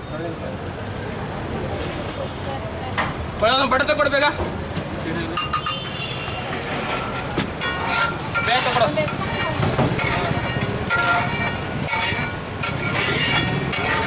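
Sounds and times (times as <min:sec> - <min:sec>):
metal spatula scraping: 0:06.2 - 0:14.0
food sizzling: 0:07.6 - 0:14.0.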